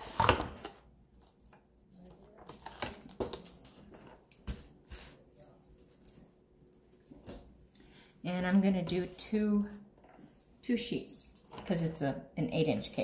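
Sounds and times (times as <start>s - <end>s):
plastic wrap rustling and crinkling: 0.0s - 6.4s.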